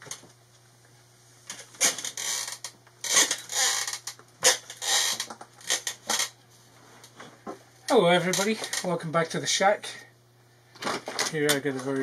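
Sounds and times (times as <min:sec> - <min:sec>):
chair creaking and squeaking: 0:01.5 - 0:06.4, 0:07.0 - 0:09.0, 0:10.8 - 0:12.0.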